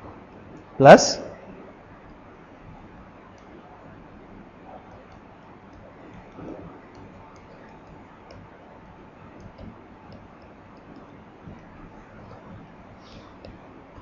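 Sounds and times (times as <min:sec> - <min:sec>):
low room hum: 0:00.0 - 0:14.0
stylus tapping on tablet screen: 0:04.9 - 0:08.6, 0:09.3 - 0:12.7, 0:13.4 - 0:14.0.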